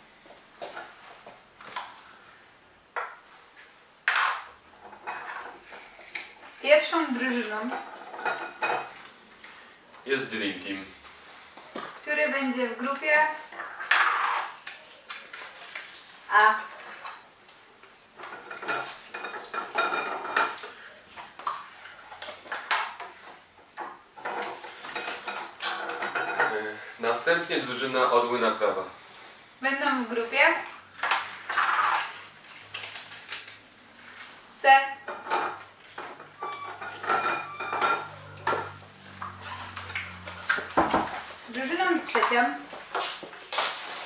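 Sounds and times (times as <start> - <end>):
capsules clattering against glass: 7.0 - 9.0, 18.2 - 20.8, 24.1 - 26.7, 35.0 - 38.8.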